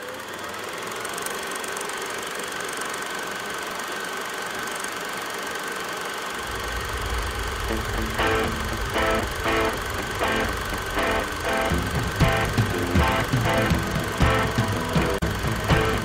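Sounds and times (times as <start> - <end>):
film projector whirring rattle: 0.0 - 16.0
deep low hum: 6.4 - 16.0
plucked music notes: 8.0 - 16.0.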